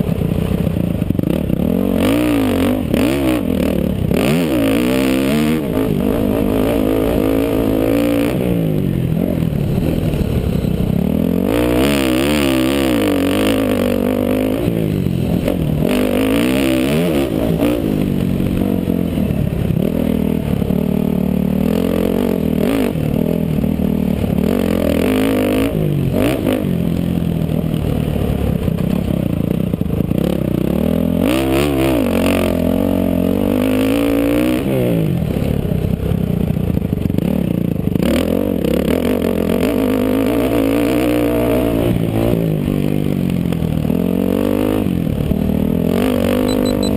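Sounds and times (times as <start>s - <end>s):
dirt bike engine revving: 1.1s - 27.6s, 37.2s - 43.0s, 43.7s - 46.9s.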